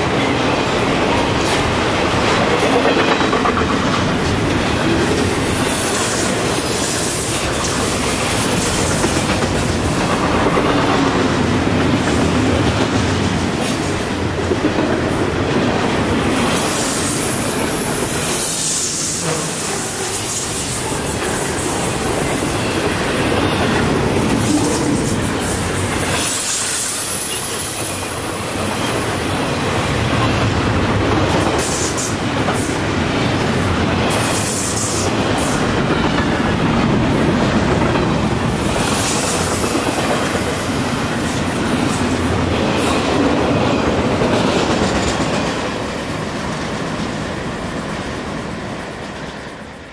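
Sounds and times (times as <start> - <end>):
freight train wheels rumbling: 0.0 - 49.9.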